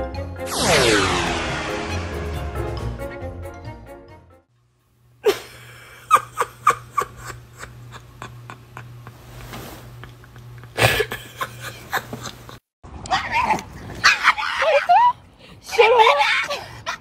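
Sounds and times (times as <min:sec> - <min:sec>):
woman laughing stifled: 0:05.2 - 0:09.1, 0:10.0 - 0:12.6.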